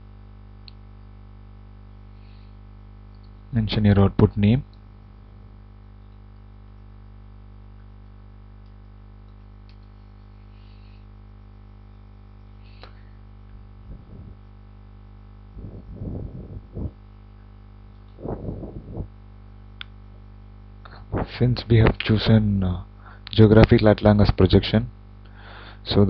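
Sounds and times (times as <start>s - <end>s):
electrical hum: 0.0s - 26.0s
muffled bursts of low noise: 13.6s - 17.4s, 18.1s - 24.6s.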